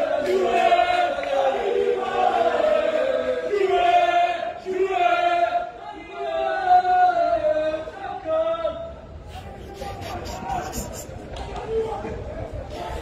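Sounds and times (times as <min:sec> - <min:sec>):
football supporters chanting: 0:00.0 - 0:07.9.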